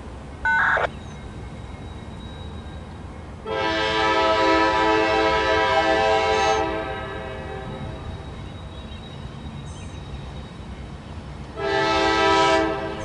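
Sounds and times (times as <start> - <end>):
train rumble: 0.0 - 13.0
locomotive air horn: 3.4 - 7.8, 11.6 - 13.0.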